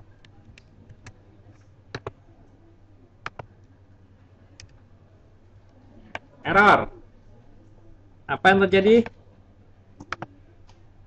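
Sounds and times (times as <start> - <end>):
keyboard and mouse clicks: 0.1 - 2.2, 3.2 - 3.7, 4.6 - 4.8, 10.0 - 10.8.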